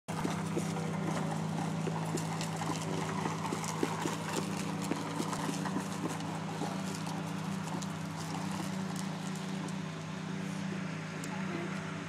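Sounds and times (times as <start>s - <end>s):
child's footsteps: 0.1s - 9.9s
steady low hum: 0.1s - 12.0s
toy truck rolling and rattling: 0.3s - 9.8s.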